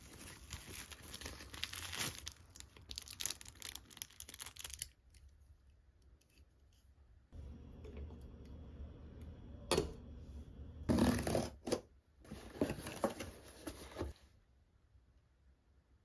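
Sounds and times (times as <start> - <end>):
cardboard and plastic rustling: 0.0 - 4.8, 12.3 - 14.2.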